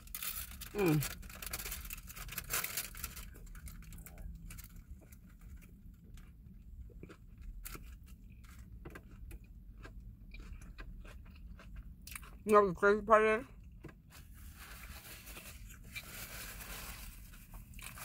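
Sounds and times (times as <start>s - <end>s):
paper wrap crinkling: 0.0s - 4.8s, 14.1s - 18.0s
person chewing and biting: 6.2s - 12.4s.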